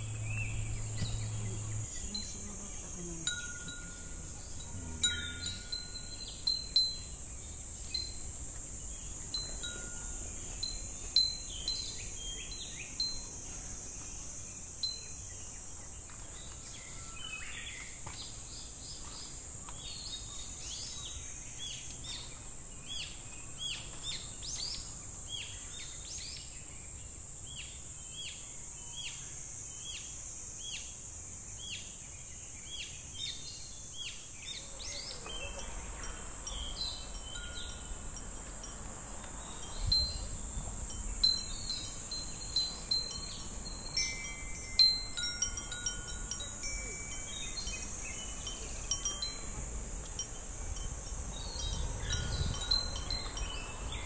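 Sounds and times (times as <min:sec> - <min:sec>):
cicadas droning: 0:00.0 - 0:54.0
glass wind chimes ringing: 0:01.0 - 0:13.6, 0:14.8 - 0:15.4, 0:35.2 - 0:54.0.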